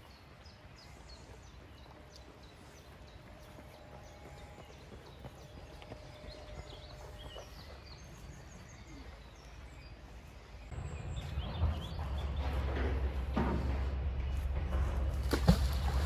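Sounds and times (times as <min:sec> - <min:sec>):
birds chirping faintly: 0:00.0 - 0:14.9
low rumble: 0:10.7 - 0:16.0.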